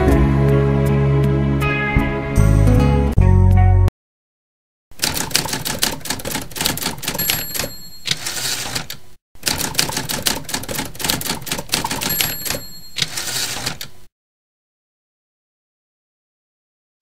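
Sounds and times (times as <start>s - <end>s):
typewriter key clatter: 5.0s - 13.9s
typewriter bell ding: 6.7s - 8.8s, 11.7s - 13.8s.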